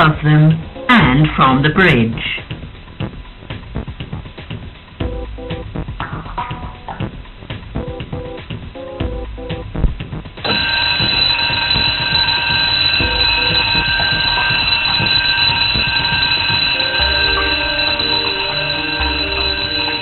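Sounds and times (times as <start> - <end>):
door warning alarm ringing: 10.4 - 20.0.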